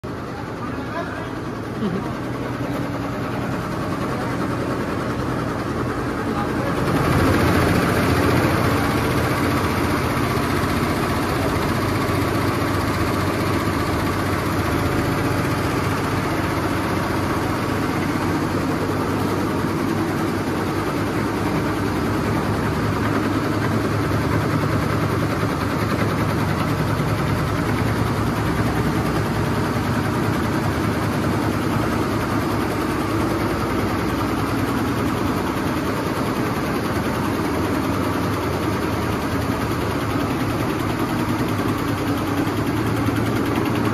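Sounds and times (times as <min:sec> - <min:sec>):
embroidery machine stitching: 0:00.9 - 0:43.9.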